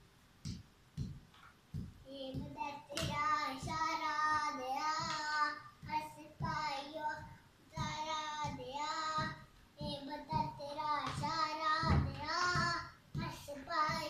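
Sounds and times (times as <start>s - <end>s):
boy singing: 2.0s - 14.0s.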